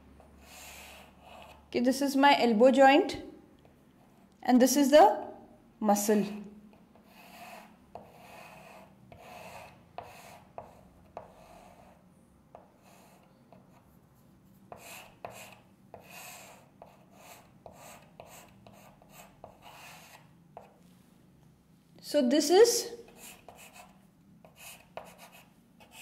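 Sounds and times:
chalk scratching on chalkboard: 0.2 - 1.7, 6.2 - 20.8, 23.1 - 26.0.

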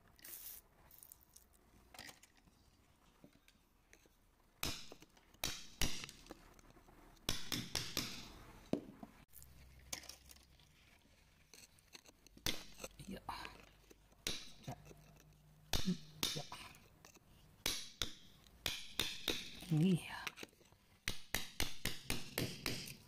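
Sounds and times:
metal tool clicking and scraping rock: 11.2 - 21.5.

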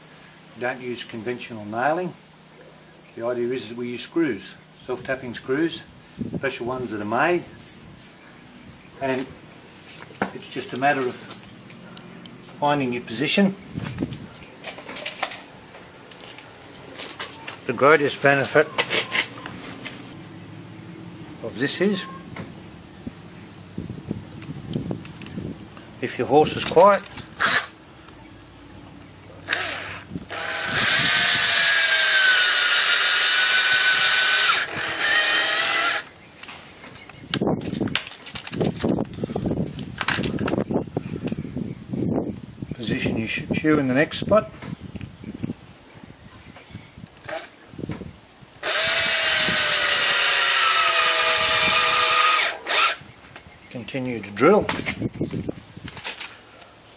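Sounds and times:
cordless drill whining: 29.5 - 36.1, 48.6 - 53.0.

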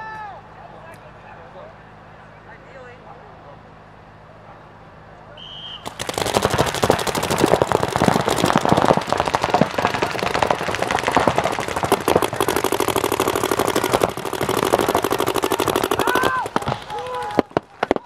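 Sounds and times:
paintball markers firing rapidly: 5.8 - 18.0.

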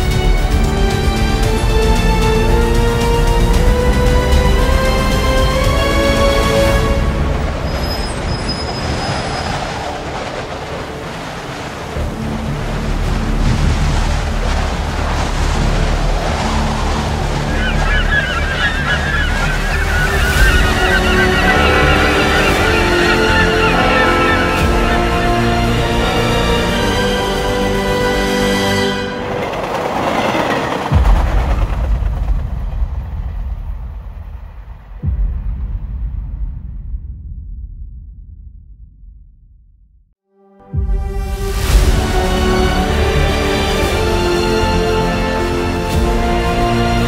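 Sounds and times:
music: 0.0 - 8.3, 9.8 - 34.3, 35.0 - 38.4, 40.2 - 47.0
low train-like rumble: 0.0 - 36.4
rushing swell: 4.3 - 31.7
steady low rumble: 12.0 - 28.2
flock of birds chirping: 16.5 - 27.4.

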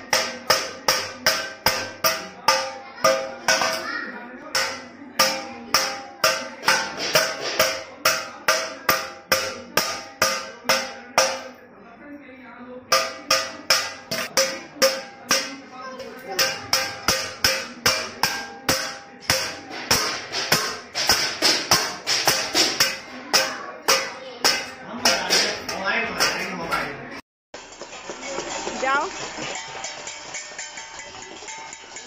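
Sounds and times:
stick beating metal bowl: 0.0 - 11.6, 12.9 - 26.9, 29.4 - 32.0.

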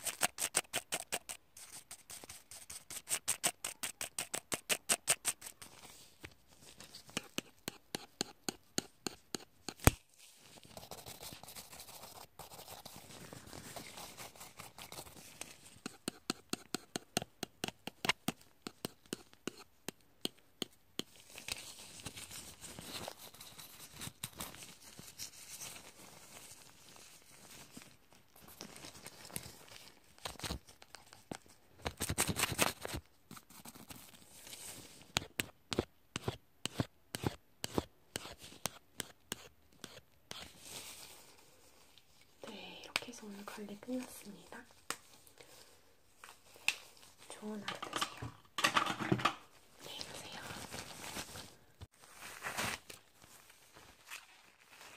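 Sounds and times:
soft rubbing and scratching: 5.4 - 17.1, 20.6 - 30.2, 49.7 - 54.9.

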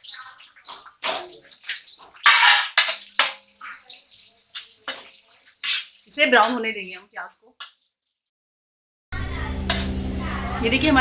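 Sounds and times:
metal spoon stirring: 0.0 - 6.7
onions sizzling in hot oil: 0.0 - 8.2, 9.2 - 11.0.

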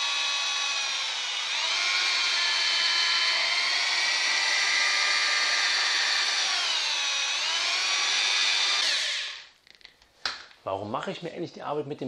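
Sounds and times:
electric drill motor whine: 0.0 - 9.5.

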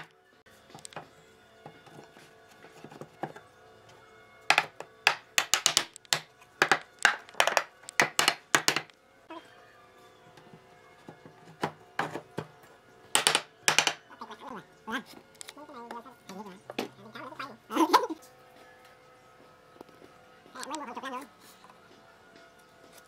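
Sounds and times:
faint background music: 0.0 - 23.0
wooden mallet knocking boards: 4.5 - 8.9, 13.2 - 14.0.

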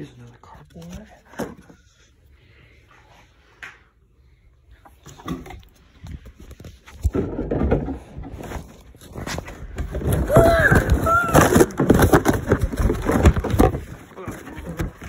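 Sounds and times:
plastic toy pieces clattering: 9.8 - 14.1.

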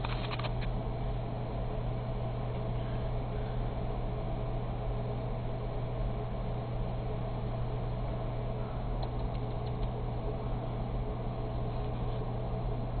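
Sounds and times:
computer cooling fans humming: 0.0 - 13.0
faint clicks: 9.0 - 10.0.

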